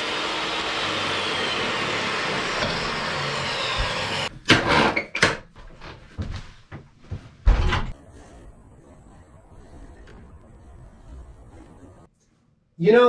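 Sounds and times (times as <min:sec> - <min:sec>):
table saw cutting wood: 0:00.0 - 0:05.0.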